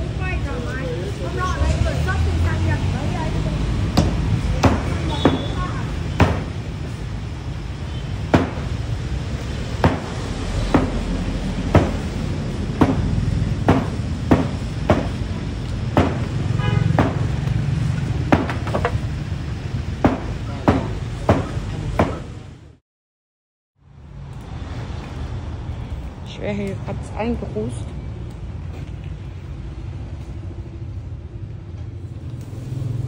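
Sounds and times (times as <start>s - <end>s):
sharp knocks: 4.0s - 6.6s, 8.3s - 8.7s, 9.8s - 11.1s, 11.7s - 12.1s, 12.8s - 15.3s, 15.9s - 17.3s, 18.3s - 19.0s, 20.0s - 22.3s.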